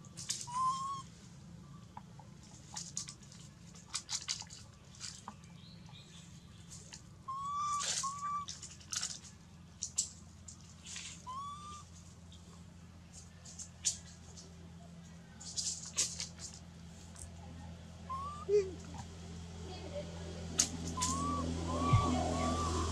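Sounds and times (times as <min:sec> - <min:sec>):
short whistle-like calls: 0:00.4 - 0:01.1, 0:07.3 - 0:08.5, 0:11.1 - 0:11.9, 0:18.0 - 0:18.6, 0:20.6 - 0:22.9
dry leaves crackling: 0:06.2 - 0:17.4.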